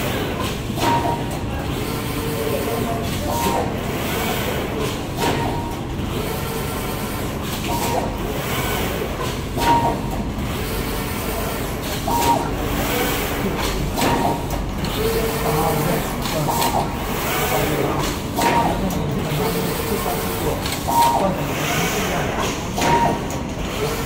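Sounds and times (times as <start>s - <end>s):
printing machine rumble and whirr: 0.0s - 24.0s.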